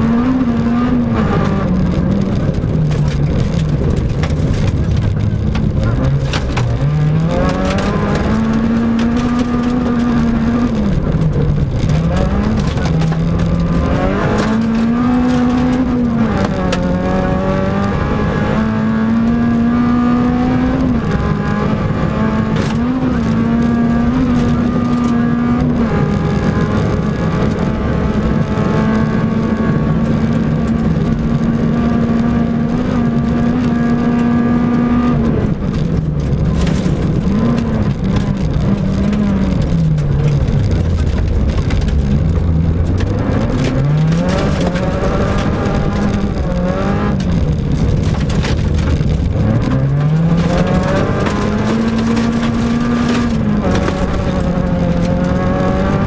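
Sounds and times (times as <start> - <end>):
car engine revving: 0.0 - 56.0
gravel rattling against car: 0.0 - 56.0.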